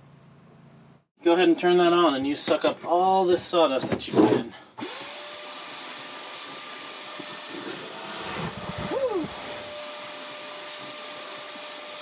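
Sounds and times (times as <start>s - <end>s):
cordless drill drilling: 4.8s - 12.0s
vacuum running: 4.8s - 12.0s.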